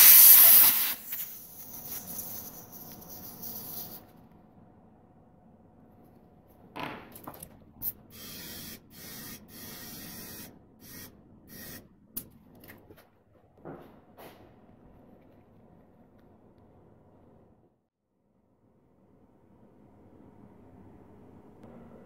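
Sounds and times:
short hissing sprays: 0.0s - 2.2s.

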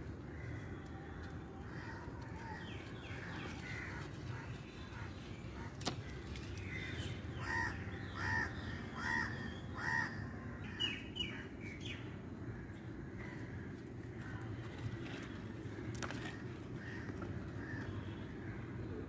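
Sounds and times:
crow cawing: 6.7s - 10.2s.

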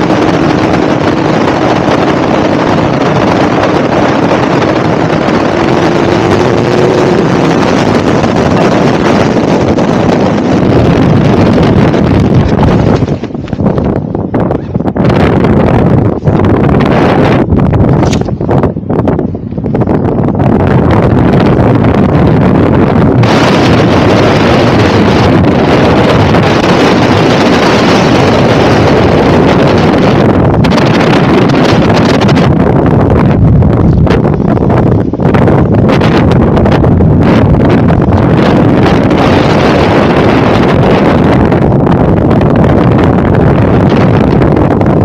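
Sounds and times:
loud wind rushing: 0.0s - 45.0s.

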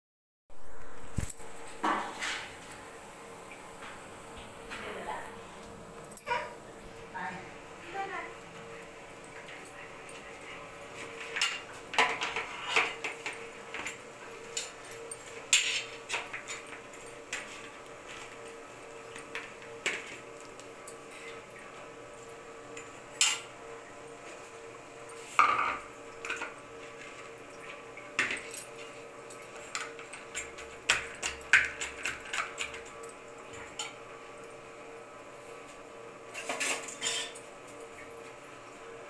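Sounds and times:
faint steady hum: 0.5s - 39.0s
spoon clinking on ceramic plates: 36.4s - 37.5s.

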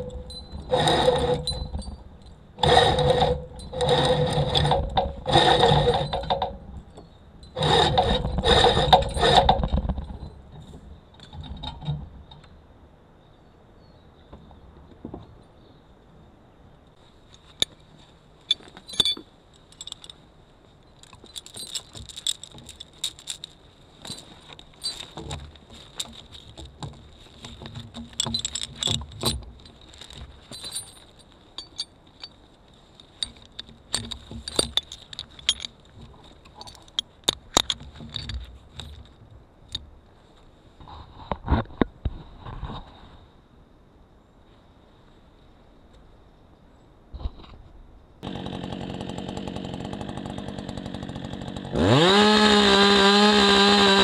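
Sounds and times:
steel chain clinking and rattling: 0.0s - 10.6s, 17.4s - 20.2s, 20.8s - 39.9s.

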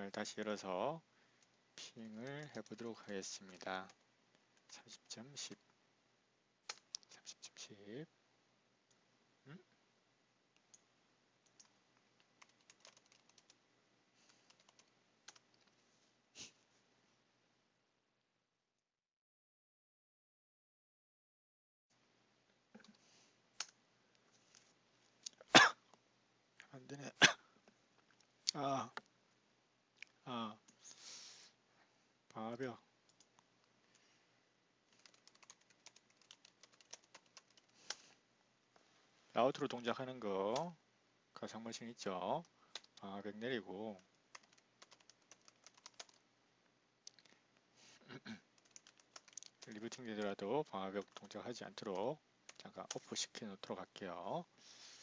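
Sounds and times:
keyboard typing: 2.1s - 4.0s, 10.7s - 13.6s, 14.3s - 15.8s, 34.9s - 38.1s, 42.4s - 43.0s, 44.0s - 46.2s, 48.6s - 53.1s
computer keyboard keystroke clicks: 12.4s - 13.6s, 34.9s - 37.7s, 42.7s - 43.0s, 44.4s - 46.2s, 48.6s - 49.6s.

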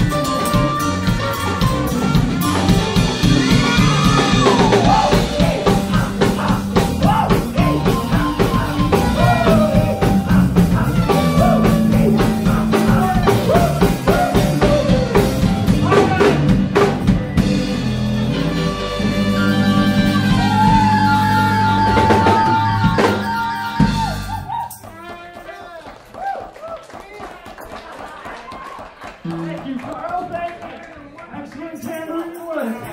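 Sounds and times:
live rock band: 0.0s - 24.7s
drum kit beating: 0.0s - 25.5s
swooping gliding guitar notes: 17.4s - 23.1s.

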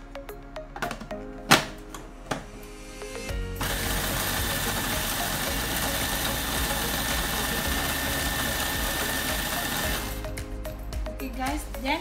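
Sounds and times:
food processor grinding: 3.6s - 10.2s.

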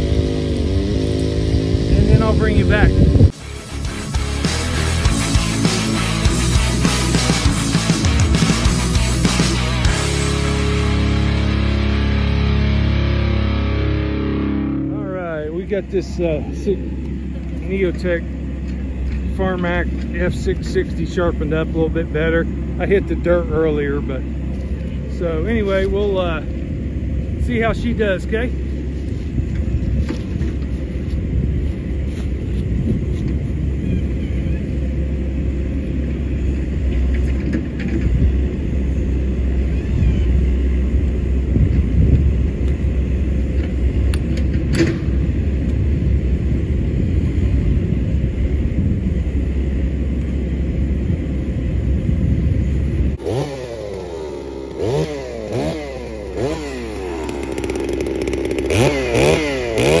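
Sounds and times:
chainsaw revving: 0.0s - 15.6s, 53.2s - 60.0s
low rumble: 0.0s - 53.2s.

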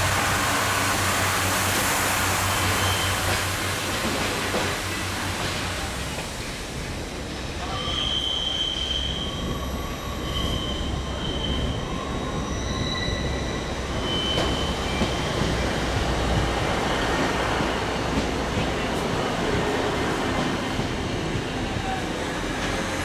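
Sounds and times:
train wheels squealing: 2.3s - 3.6s, 7.6s - 16.0s.

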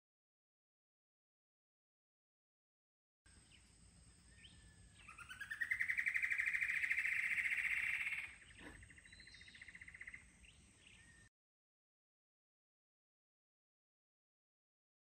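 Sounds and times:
bird singing fast trill: 3.3s - 11.3s.

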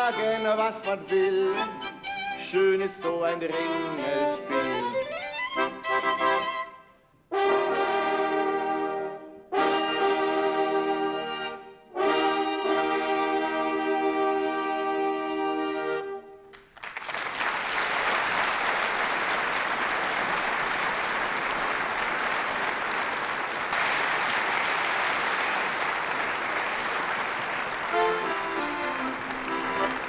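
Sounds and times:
violin: 0.0s - 16.4s, 27.9s - 30.0s
accordion: 0.0s - 16.5s, 27.0s - 30.0s
brass ensemble chord: 7.3s - 16.4s
audience applauding: 16.5s - 30.0s.

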